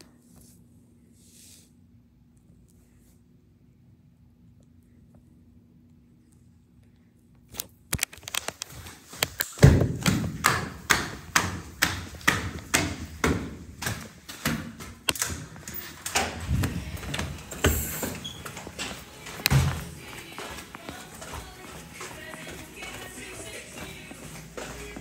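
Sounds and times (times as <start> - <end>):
footsteps thumping: 8.5 - 25.0.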